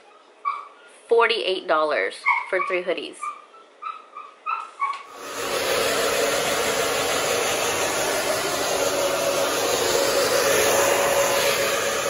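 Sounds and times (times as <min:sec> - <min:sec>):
hair dryer running: 0:05.1 - 0:12.0.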